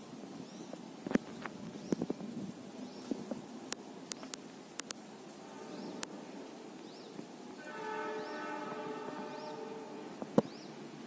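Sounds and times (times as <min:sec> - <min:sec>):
sharp clicks: 0:03.7 - 0:05.0
distant train horn: 0:05.4 - 0:06.6, 0:07.5 - 0:10.4
high chirping call: 0:06.8 - 0:10.8.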